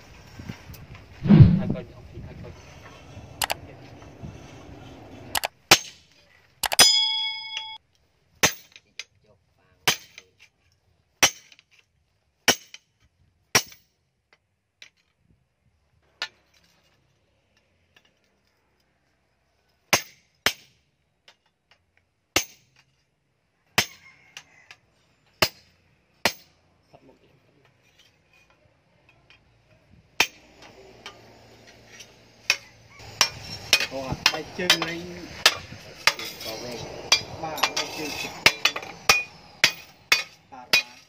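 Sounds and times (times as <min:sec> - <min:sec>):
hammer striking steel on anvil: 0:06.7 - 0:07.8, 0:30.2 - 0:41.0.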